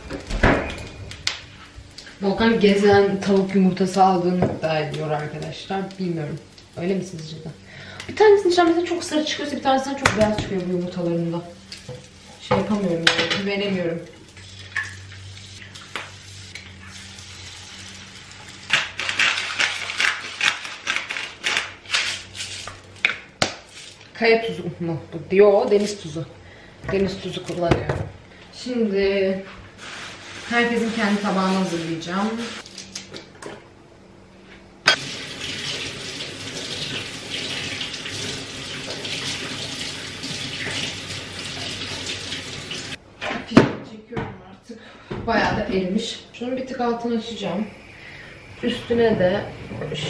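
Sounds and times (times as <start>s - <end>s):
kitchen tap running: 2.0s - 20.2s, 34.9s - 43.0s
eggs frying in a pan: 3.1s - 20.4s, 34.9s - 43.0s
steady low hum: 44.0s - 50.0s.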